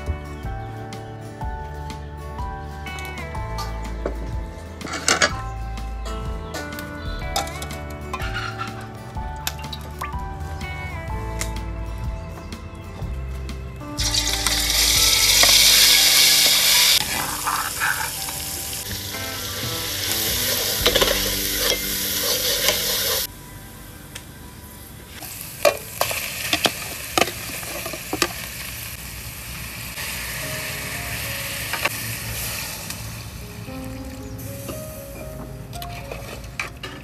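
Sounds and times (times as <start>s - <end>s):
chilli paste sizzling in hot oil: 14.0s - 23.3s, 25.2s - 33.4s.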